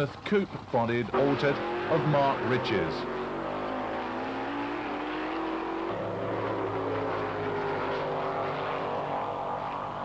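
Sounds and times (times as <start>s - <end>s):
drag car engines at full throttle: 0.0s - 10.0s.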